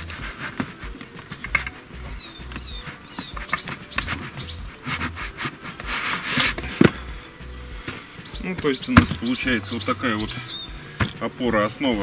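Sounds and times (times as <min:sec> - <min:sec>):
small bird chirping: 0:00.0 - 0:05.4, 0:07.0 - 0:11.0.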